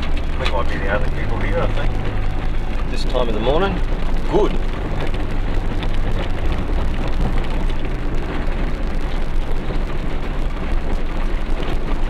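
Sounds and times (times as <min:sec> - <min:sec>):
car engine and tyre rumble: 0:00.0 - 0:12.0
gravel crackling under tyres: 0:00.0 - 0:12.0.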